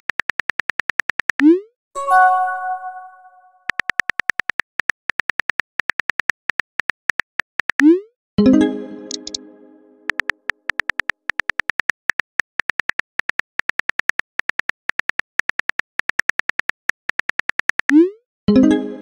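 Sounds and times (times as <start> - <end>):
notification chime: 2.0 - 3.6
phone keyboard typing clicks: 9.1 - 9.4, 10.1 - 18.0.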